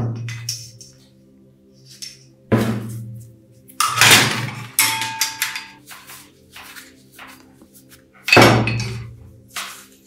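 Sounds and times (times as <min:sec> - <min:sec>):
metal parts clinking on wood: 0:03.8 - 0:05.8.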